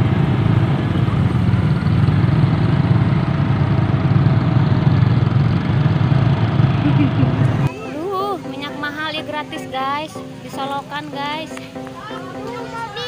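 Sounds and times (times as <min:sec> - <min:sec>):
vehicle engine running: 0:00.0 - 0:07.7.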